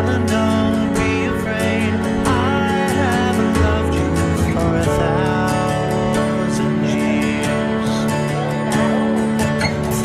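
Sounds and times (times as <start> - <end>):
music with plucked guitar: 0.0 - 10.0.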